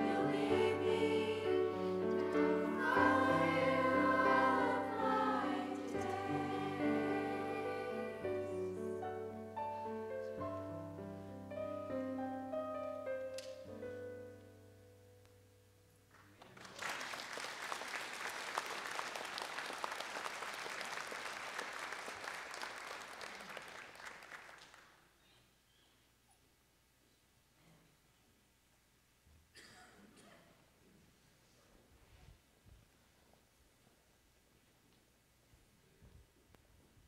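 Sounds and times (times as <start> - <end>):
congregation applauding: 16.1 - 25.1.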